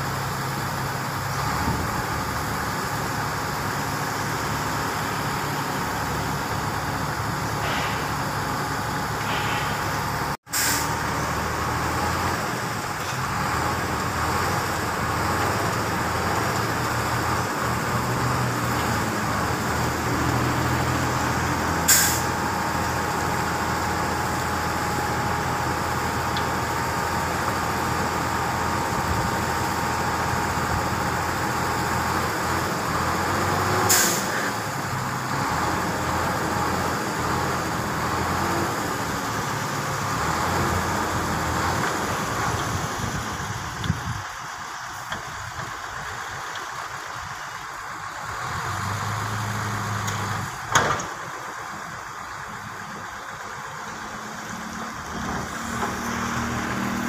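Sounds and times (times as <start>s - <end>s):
truck engine running: 0.0s - 57.0s
faint hydraulic whine: 0.2s - 11.5s, 21.7s - 23.5s
air release hisses: 7.6s - 8.3s, 9.2s - 11.0s, 21.9s - 22.3s, 33.9s - 34.5s.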